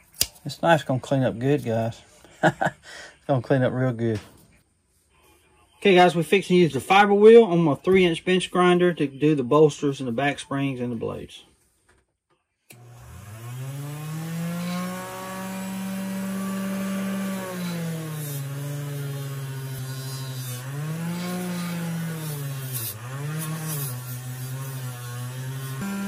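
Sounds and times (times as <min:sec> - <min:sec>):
bench grinder running: 0:12.7 - 0:26.0
metal scraping on polishing wheel: 0:14.5 - 0:26.0.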